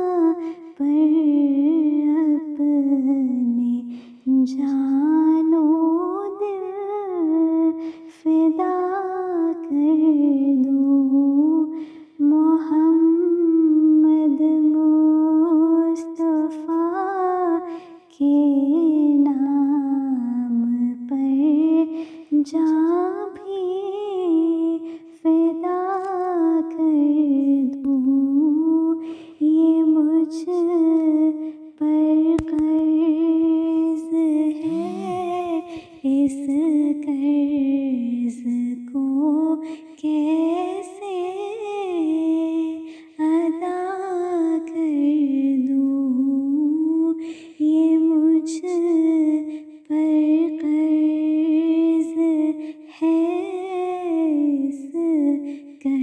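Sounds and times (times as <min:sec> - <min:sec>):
woman humming: 0:34.5 - 0:35.8.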